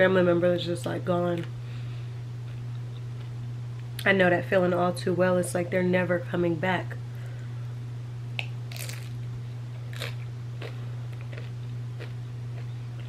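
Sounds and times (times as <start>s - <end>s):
low hum: 0.0s - 13.0s
crunching taco shell: 8.4s - 9.2s, 9.9s - 13.0s.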